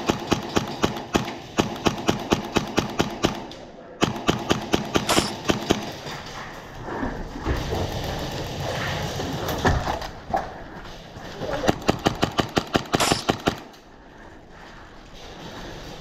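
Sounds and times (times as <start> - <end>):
airsoft rifle rapid shots: 0.0 - 6.0, 11.6 - 13.7.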